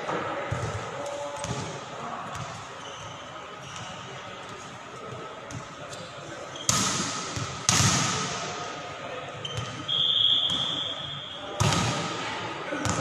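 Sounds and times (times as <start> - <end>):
referee's whistle blast: 9.9 - 11.5.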